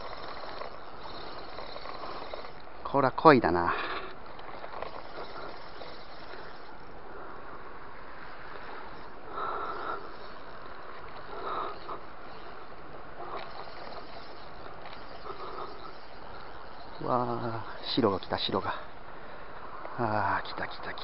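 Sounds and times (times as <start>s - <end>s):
waterside hiss: 0.0s - 21.0s.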